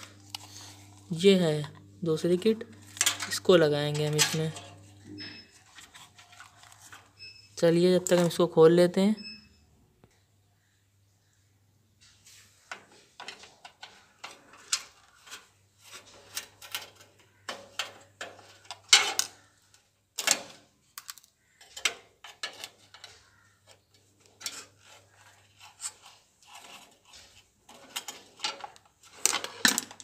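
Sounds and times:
screwdriver clicks and scrapes on metal: 0:02.8 - 0:07.1, 0:20.2 - 0:30.0.

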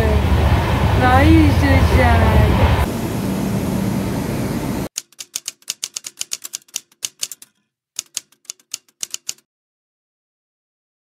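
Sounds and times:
railway platform noise: 0:00.0 - 0:04.9
typewriter key clicks: 0:04.9 - 0:09.4.

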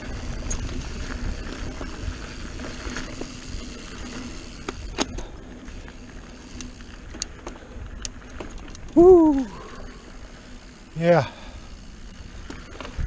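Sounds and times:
bike tyres rumbling on dirt: 0:00.0 - 0:13.0.

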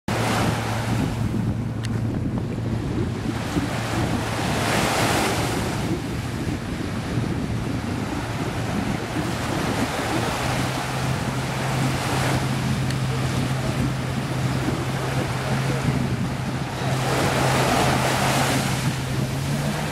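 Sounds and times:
jet ski engine humming: 0:00.1 - 0:19.9
surf washing on shore: 0:00.1 - 0:19.9
wind on microphone: 0:00.1 - 0:19.9.

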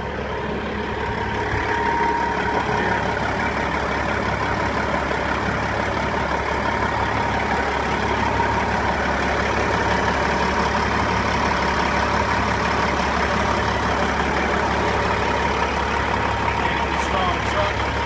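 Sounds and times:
diesel engine idling: 0:00.0 - 0:18.0.

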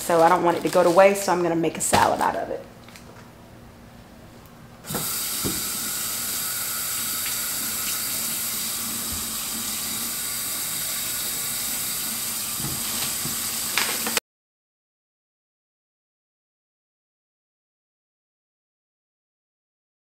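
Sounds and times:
faucet running into metal sink: 0:04.9 - 0:14.2.

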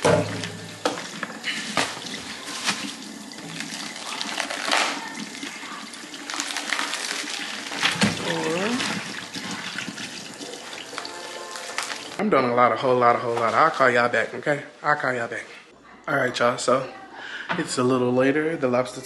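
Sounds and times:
objects knocking and clattering: 0:00.0 - 0:02.8.

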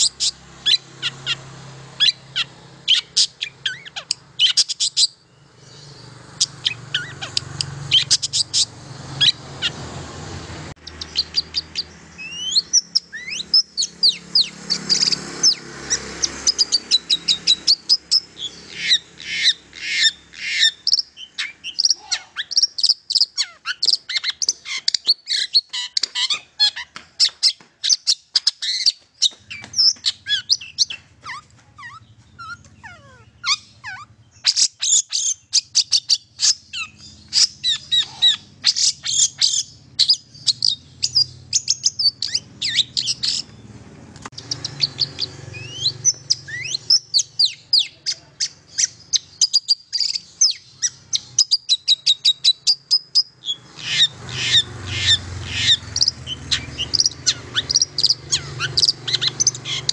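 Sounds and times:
shrike singing chatter: 0:44.4 - 0:59.9.

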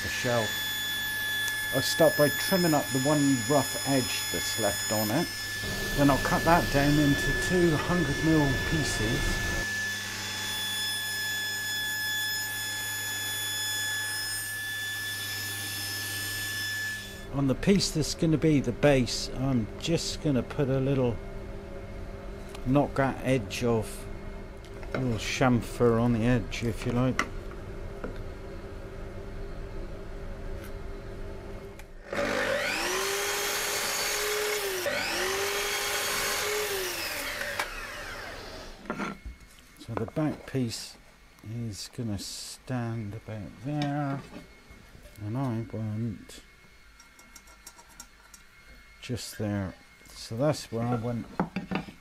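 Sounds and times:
saw cutting wood: 0:00.0 - 0:18.0, 0:32.0 - 0:39.2
table saw whining: 0:00.0 - 0:21.2, 0:32.0 - 0:40.9.

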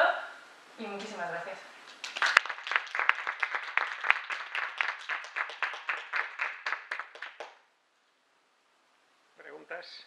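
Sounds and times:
audience applause: 0:01.9 - 0:07.6.

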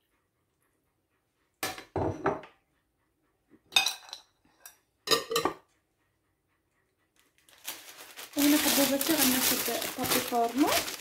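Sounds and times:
dishes clinking: 0:01.6 - 0:02.5, 0:03.7 - 0:05.7.

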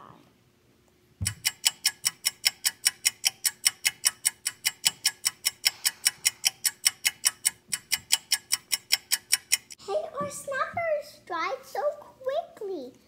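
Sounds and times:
clock ticking: 0:01.2 - 0:10.6.

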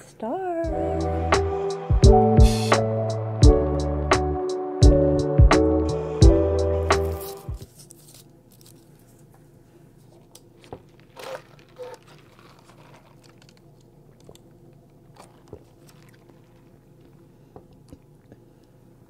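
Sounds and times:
slurping through a straw: 0:11.1 - 0:13.7, 0:15.1 - 0:18.4.

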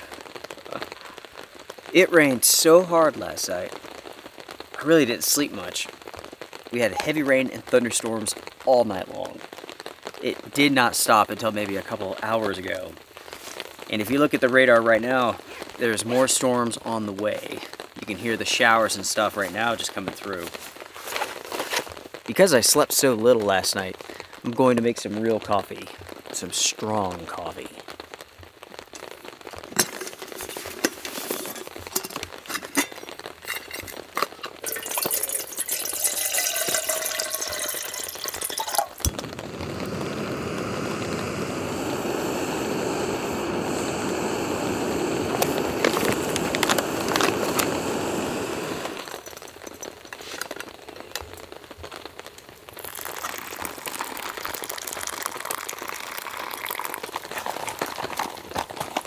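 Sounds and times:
hot water pouring into a cup: 0:29.7 - 0:50.6, 0:52.7 - 0:59.0
camp cookware rattling: 0:29.8 - 0:39.1
water pouring into a vessel: 0:34.6 - 0:49.4, 0:52.8 - 0:59.0
gas stove hissing: 0:38.4 - 0:49.2.

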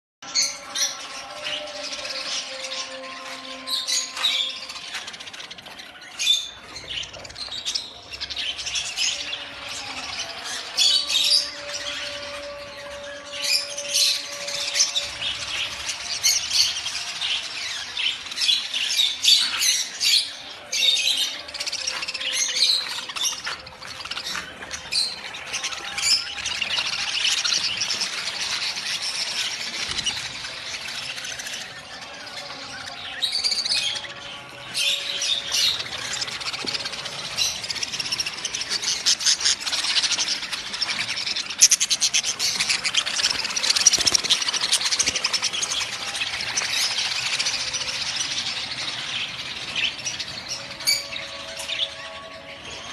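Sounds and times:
budgerigars chattering: 0:33.6 - 0:51.2.

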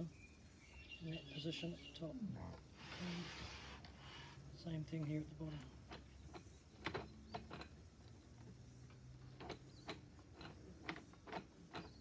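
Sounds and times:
model engine gears clicking: 0:05.1 - 0:12.0.

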